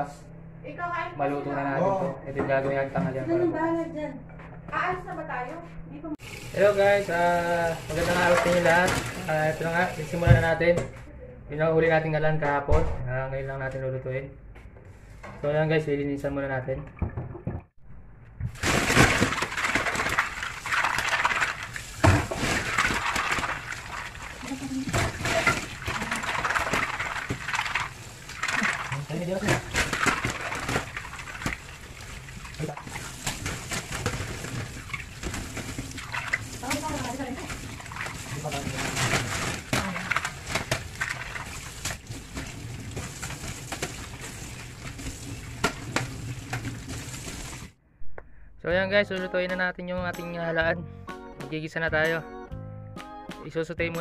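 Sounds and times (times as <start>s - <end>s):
running tap: 6.2s - 10.5s, 19.5s - 47.8s
water splashing: 6.2s - 10.5s, 18.6s - 47.8s.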